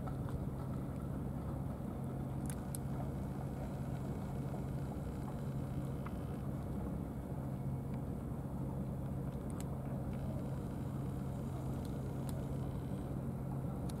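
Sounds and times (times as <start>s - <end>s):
faint ticks: 3.8s - 6.3s.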